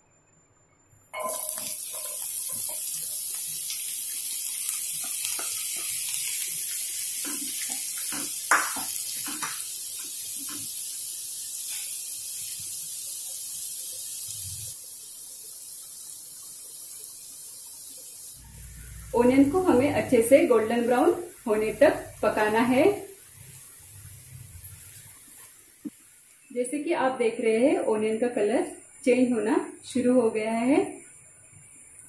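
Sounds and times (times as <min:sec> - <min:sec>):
onions sizzling in hot oil: 0:01.2 - 0:27.0.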